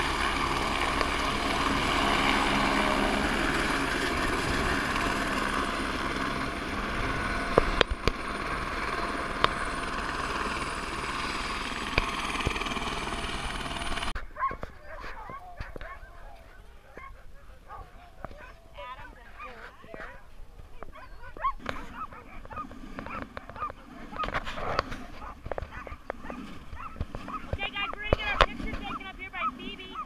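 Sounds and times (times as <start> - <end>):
helicopter rotor chop: 0.0 - 14.2, 20.9 - 30.0
high turbine whine: 0.0 - 14.2, 21.3 - 29.9.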